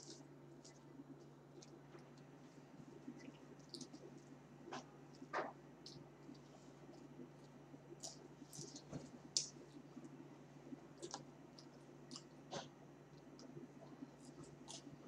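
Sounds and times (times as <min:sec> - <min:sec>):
person eating fries: 0:10.8 - 0:15.0.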